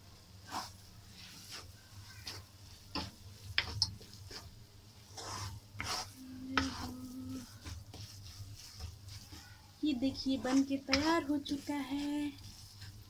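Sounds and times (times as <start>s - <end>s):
wooden spatula scraping egg: 0.4s - 13.0s
low steady hum: 3.2s - 13.0s.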